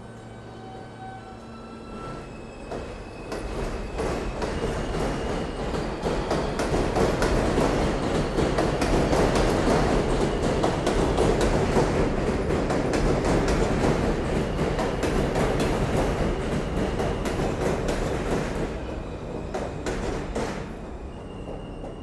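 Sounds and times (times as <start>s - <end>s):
train wheels clickety-clack: 2.7s - 22.0s.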